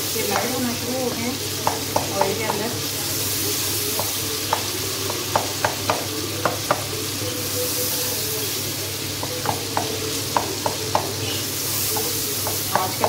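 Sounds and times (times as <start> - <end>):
tomatoes sizzling in oil: 0.0 - 13.0
spatula tapping pan: 0.2 - 2.8, 3.8 - 7.1, 9.0 - 13.0.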